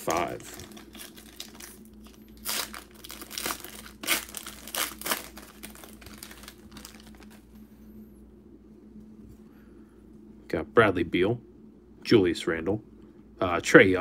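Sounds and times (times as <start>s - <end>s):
foil wrapper tearing and crinkling: 0.0s - 7.4s.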